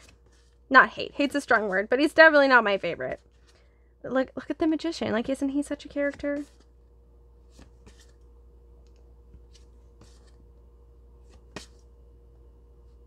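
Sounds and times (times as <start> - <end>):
steady low hum: 0.0 - 13.0
cards swiping and tapping: 7.5 - 8.2, 11.2 - 11.9.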